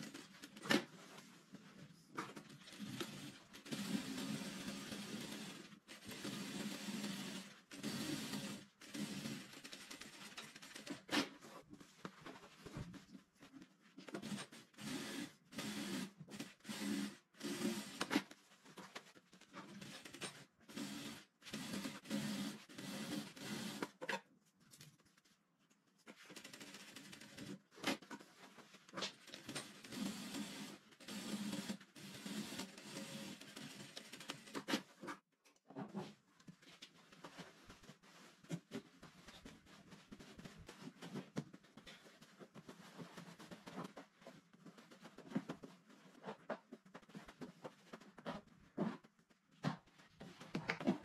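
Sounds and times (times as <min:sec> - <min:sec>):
sewing machine stitching: 0:02.2 - 0:11.3, 0:14.1 - 0:18.2, 0:19.6 - 0:24.1, 0:29.0 - 0:35.0.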